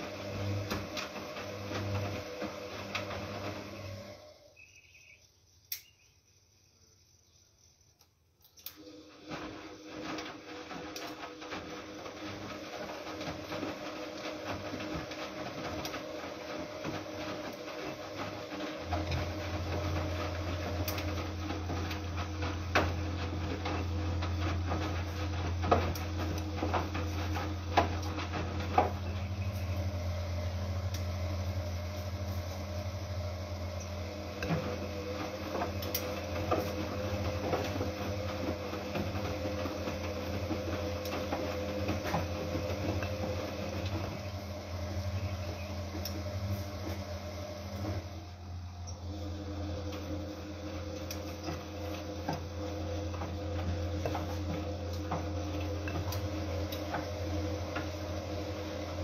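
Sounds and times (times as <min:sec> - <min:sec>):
washing machine humming: 0:00.0 - 0:59.0
sharp clicks: 0:05.7 - 0:06.0.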